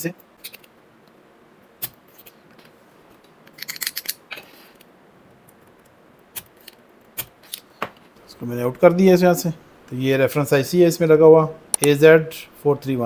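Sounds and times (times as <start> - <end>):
faint hiss: 6.0 - 13.0.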